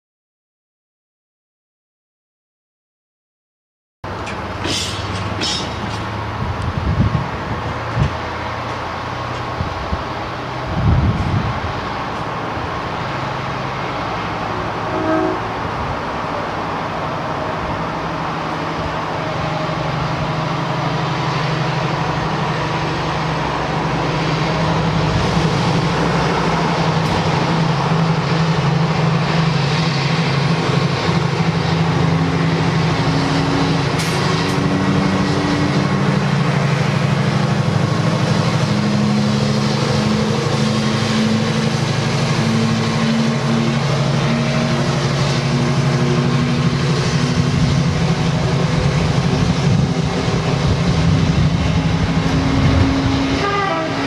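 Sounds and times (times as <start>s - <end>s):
diesel locomotive engine running: 4.0s - 54.0s.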